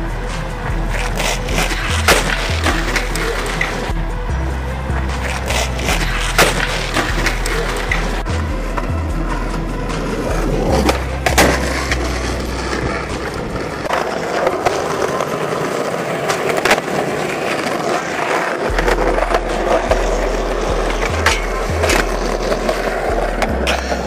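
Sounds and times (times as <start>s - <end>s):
skateboard clacks: 0.0s - 4.0s, 4.9s - 24.0s
music with deep bass: 0.0s - 13.9s, 18.7s - 24.0s
skateboard wheels rolling on concrete: 0.0s - 24.0s.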